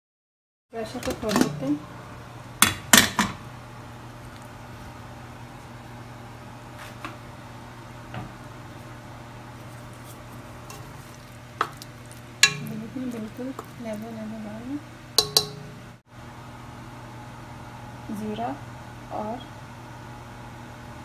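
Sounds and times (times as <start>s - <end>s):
steady low hum: 1.2s - 21.0s
spatula knocking metal pot: 12.4s - 13.8s, 15.2s - 15.9s
pressure cooker lid clank: 15.2s - 15.7s.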